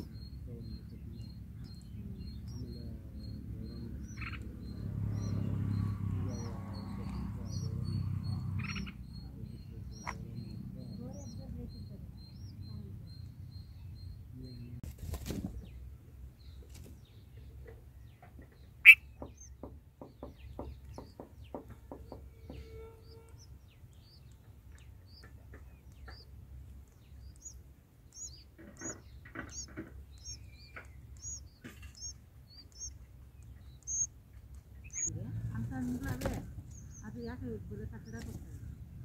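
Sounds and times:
nestlings cheeping: 0.0 - 15.7, 18.6 - 38.6
faint low rumble: 0.0 - 18.1
soft ticks: 23.2 - 35.1.

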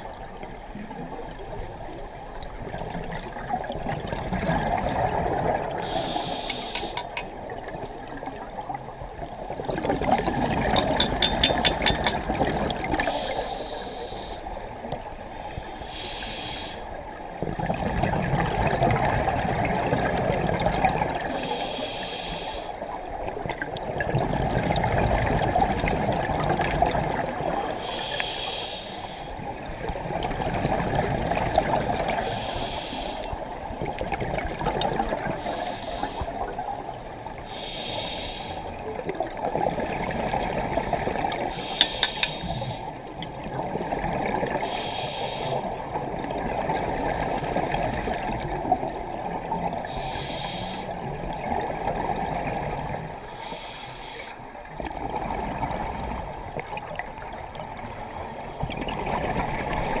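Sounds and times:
underwater bubbling: 0.0 - 60.0
regulator breathing hiss: 5.8 - 7.3, 13.0 - 14.6, 15.3 - 17.2, 21.3 - 23.0, 27.8 - 29.4, 32.2 - 33.4, 35.4 - 36.4, 37.4 - 38.8, 41.5 - 43.0, 44.6 - 45.7, 49.8 - 51.0, 53.2 - 54.5.

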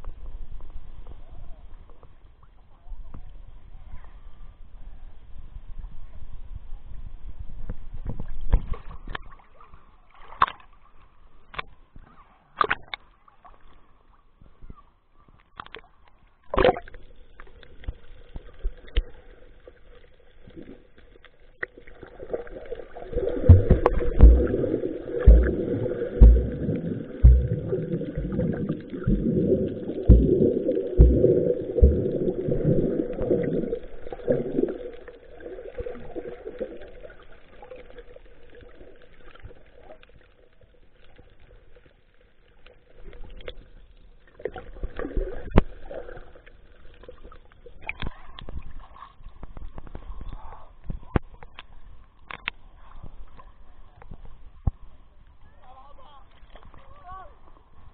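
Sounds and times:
muffled water sloshing: 21.6 - 39.5
heavy thumps: 23.4 - 32.6.

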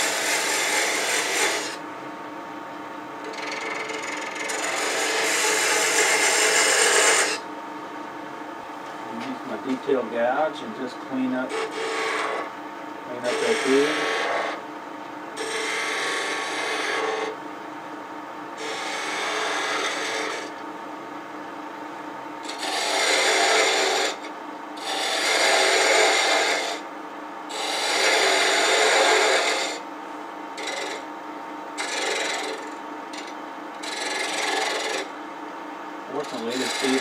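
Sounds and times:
gouge cutting wood on lathe: 0.0 - 1.8, 3.2 - 7.4, 11.5 - 12.5, 13.2 - 14.6, 15.4 - 17.3, 18.6 - 20.5, 22.4 - 24.2, 24.8 - 26.8, 27.5 - 29.8, 30.6 - 31.0, 31.8 - 35.1, 36.1 - 37.0
lathe humming: 0.0 - 1.8, 3.2 - 7.4, 8.5 - 17.4, 18.5 - 20.7, 22.3 - 26.8, 27.5 - 29.8, 30.4 - 31.0, 31.8 - 35.1, 36.0 - 37.0.

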